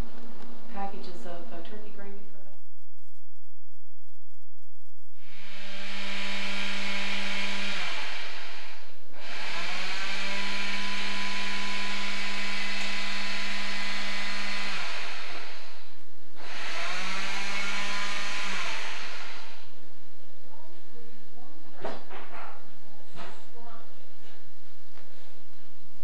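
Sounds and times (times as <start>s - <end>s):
small electric motor whining: 5.2s - 19.9s.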